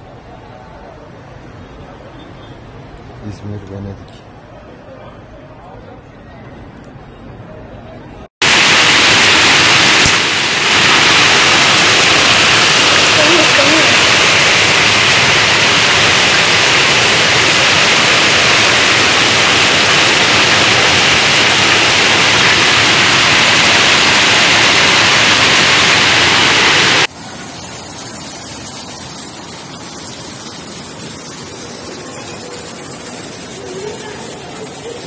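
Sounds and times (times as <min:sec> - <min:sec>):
heavy rain falling: 0:08.4 - 0:35.0.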